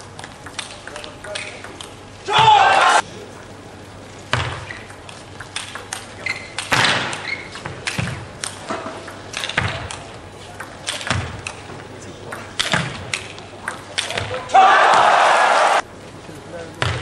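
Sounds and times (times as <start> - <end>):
table tennis ball clicking: 0.1 - 2.0, 4.3 - 14.4.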